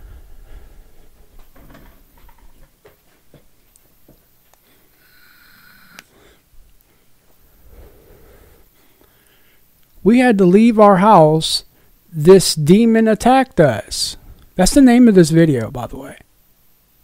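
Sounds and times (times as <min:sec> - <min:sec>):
breathing and sniffing: 0:00.0 - 0:01.2, 0:04.6 - 0:09.8.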